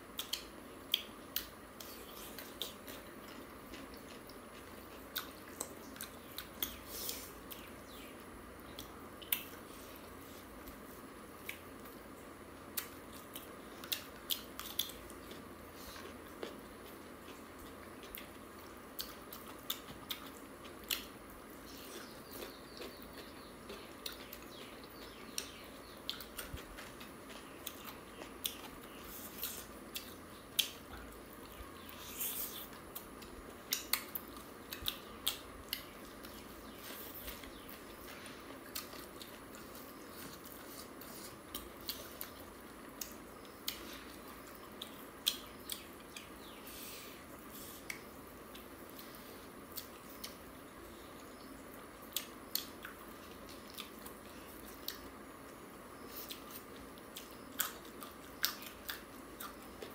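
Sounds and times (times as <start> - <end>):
people chewing food: 0.0 - 59.9
mouth clicks and smacks: 0.2 - 3.0, 44.5 - 46.4.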